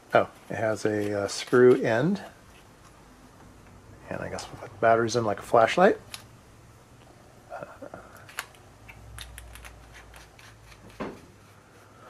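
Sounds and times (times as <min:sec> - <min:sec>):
person murmuring: 0:07.5 - 0:08.2
batteries clicking and clattering: 0:08.2 - 0:11.1.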